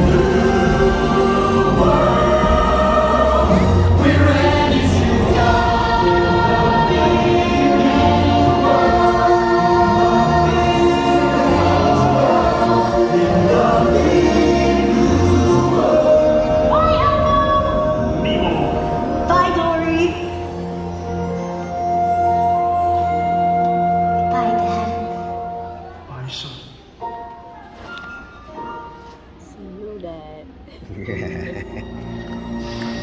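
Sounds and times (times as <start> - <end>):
choir singing: 0.0 - 19.2
loud stage musical music: 0.0 - 22.7.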